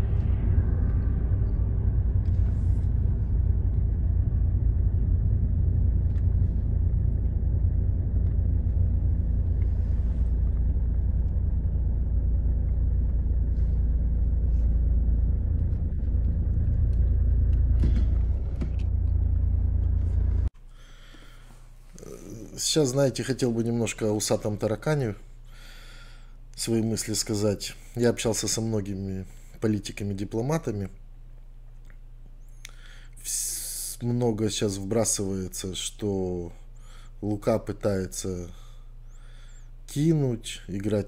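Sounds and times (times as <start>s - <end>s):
car interior rumble: 0.0s - 20.6s.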